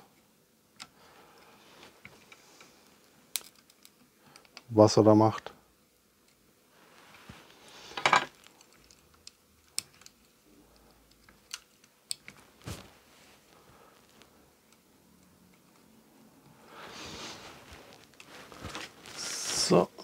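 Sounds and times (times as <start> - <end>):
rustling scrape: 16.7 - 19.6.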